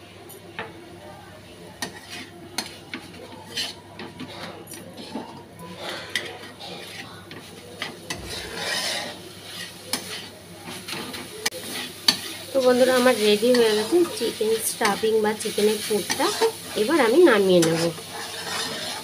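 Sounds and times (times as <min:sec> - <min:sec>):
metal spatula scraping pan: 0:01.8 - 0:19.0.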